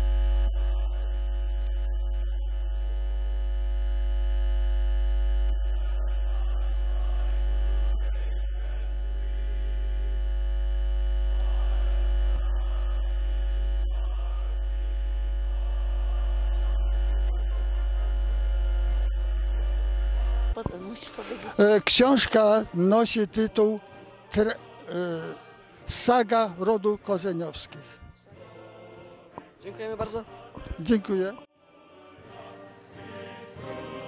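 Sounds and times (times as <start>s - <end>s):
electrical mains hum: 0.0s - 23.8s.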